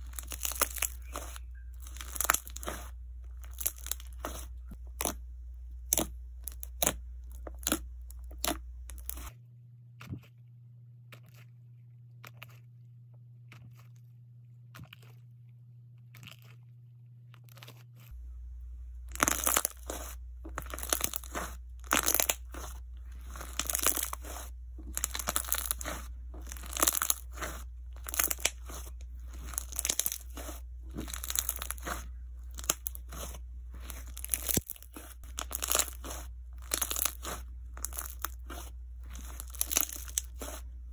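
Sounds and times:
slime squished crackling and popping: 0.0s - 5.2s, 5.8s - 9.3s, 19.1s - 40.9s
low hum: 0.0s - 12.1s, 18.1s - 40.9s.

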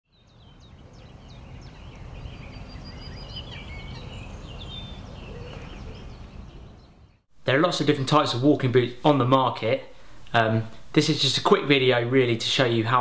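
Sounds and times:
birds chirping and singing: 0.1s - 7.3s.

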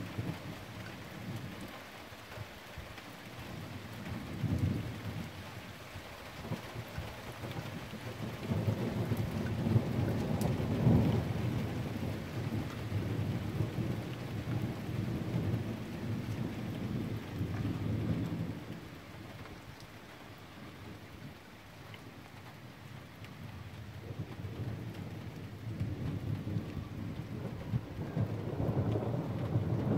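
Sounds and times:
steady rain: 0.0s - 29.9s
rolling thunder: 8.2s - 19.0s, 23.4s - 29.9s.

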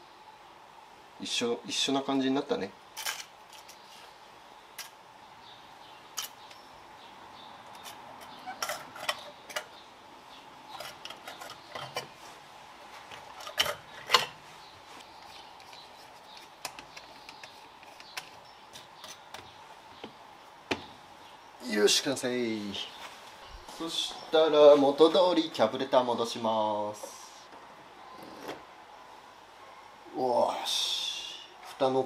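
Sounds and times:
faint steady hum: 0.0s - 32.0s
metallic clicks of small parts: 3.0s - 3.8s, 6.2s - 6.6s.

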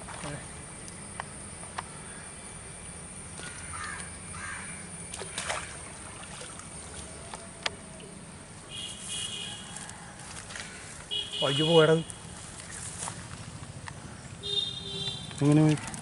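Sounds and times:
light water movement: 0.0s - 0.6s, 4.9s - 7.9s
harsh bird calls: 3.4s - 4.9s.

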